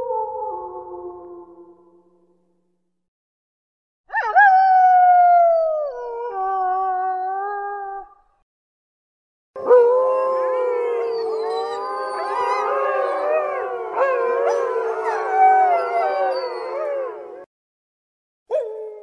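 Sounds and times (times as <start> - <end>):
wolves howling: 9.6 - 17.5.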